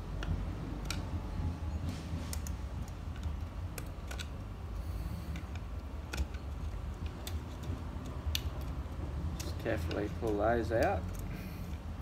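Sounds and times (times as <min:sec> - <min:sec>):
steady low hum: 0:00.0 - 0:12.0
screwdriver clicks: 0:05.3 - 0:11.8.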